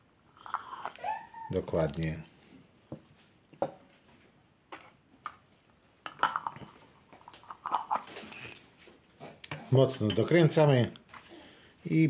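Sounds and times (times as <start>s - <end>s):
lids screwing onto glass jars: 6.1s - 8.6s.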